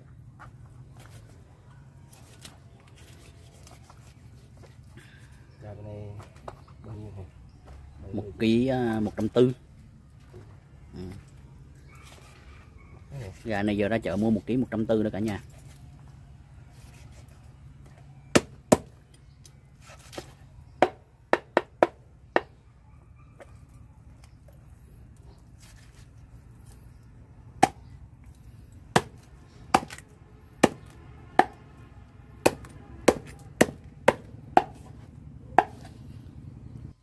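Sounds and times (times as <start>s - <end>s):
knife chopping on wooden board: 28.9s - 30.0s, 30.6s - 31.6s, 32.4s - 34.9s, 35.6s - 35.9s.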